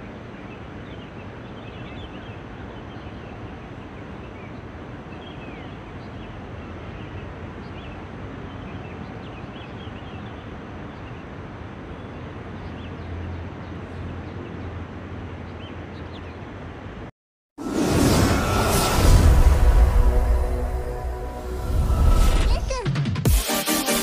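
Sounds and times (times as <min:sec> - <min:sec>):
distant traffic rumble: 0:00.0 - 0:17.1
small birds chirping: 0:00.4 - 0:16.6.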